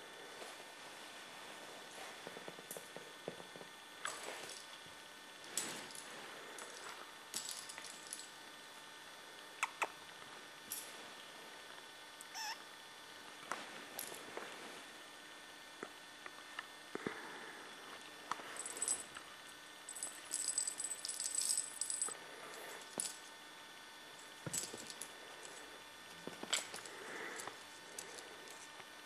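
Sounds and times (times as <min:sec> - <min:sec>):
small metal chain jingling: 0:19.9 - 0:22.2.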